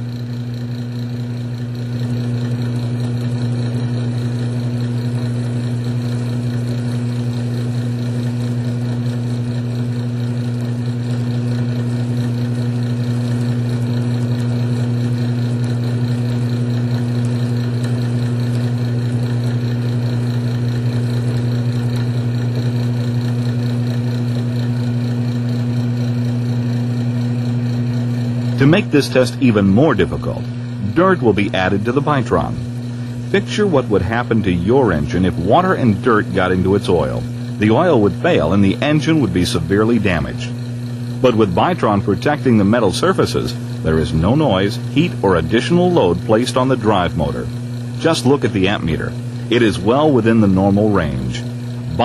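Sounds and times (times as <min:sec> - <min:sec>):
electric motor humming: 0:00.0 - 0:52.0.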